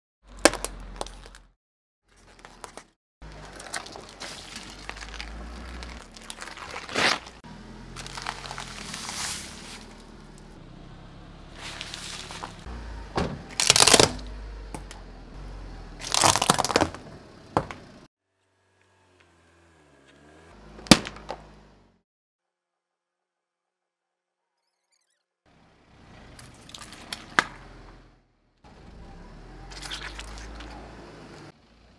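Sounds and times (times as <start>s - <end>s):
foil crinkling: 2.2s - 7.4s, 8.0s - 10.0s, 11.6s - 12.6s, 13.6s - 14.2s, 16.0s - 16.9s
plastic cracking and crunching: 2.4s - 7.4s, 8.0s - 9.1s, 13.5s - 14.3s, 16.0s - 17.0s.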